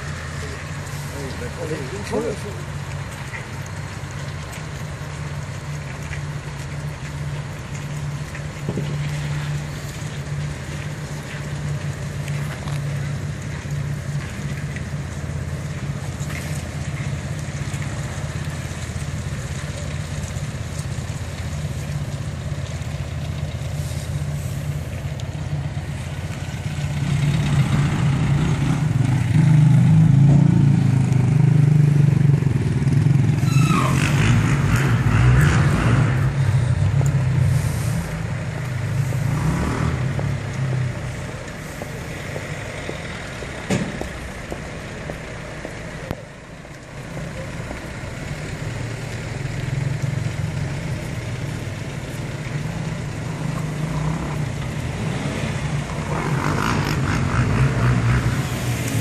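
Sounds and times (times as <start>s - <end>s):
brief high squeal: 33.4s - 34.1s.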